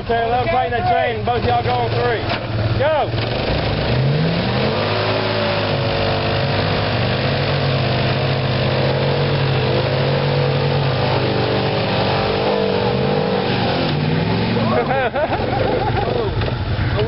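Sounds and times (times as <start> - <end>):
truck engine revving: 0.0 - 17.0.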